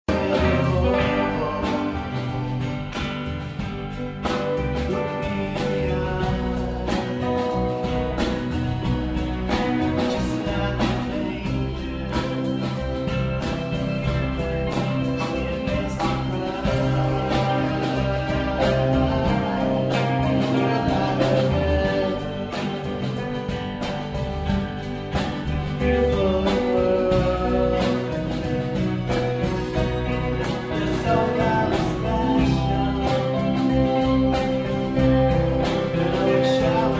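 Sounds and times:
person singing: 0.0s - 3.0s, 4.2s - 24.2s, 25.1s - 36.9s
strummed guitar: 0.0s - 36.9s.

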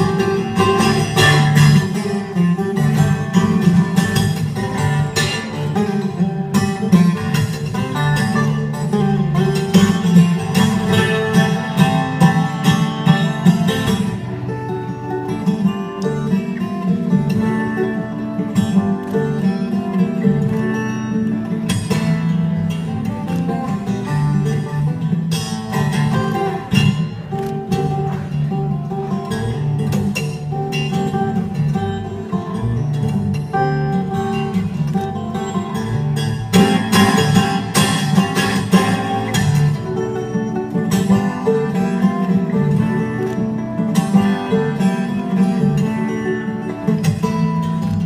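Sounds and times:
fingerstyle acoustic guitar: 0.0s - 48.0s.

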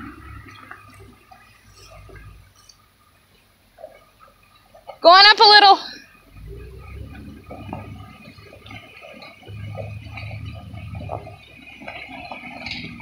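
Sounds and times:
car engine running low: 0.0s - 5.0s, 6.0s - 13.0s
tyres splashing through mud: 0.0s - 13.0s.

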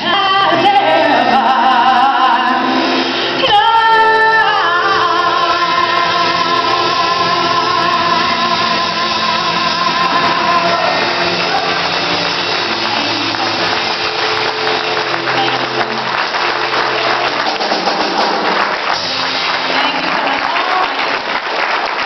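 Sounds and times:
woman singing: 0.0s - 11.9s
live band playing: 0.0s - 22.0s
audience applause: 5.6s - 22.0s.

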